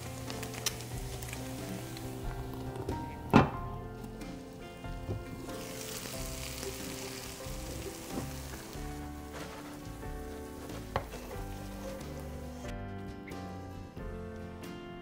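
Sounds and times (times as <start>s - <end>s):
food sizzling in a frying pan: 0.0s - 3.2s, 4.2s - 12.6s
background music: 0.0s - 15.0s.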